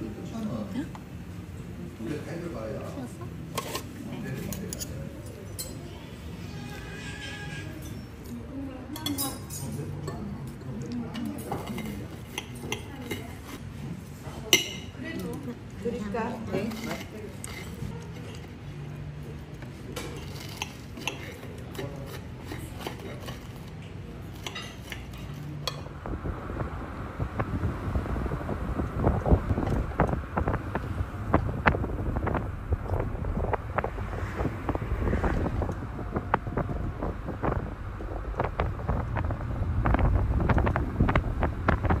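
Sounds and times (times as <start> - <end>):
cutlery clinking on a plate: 9.0 - 13.4, 19.9 - 23.6
low steady hum: 22.6 - 42.0
wind buffeting microphone: 25.8 - 42.0.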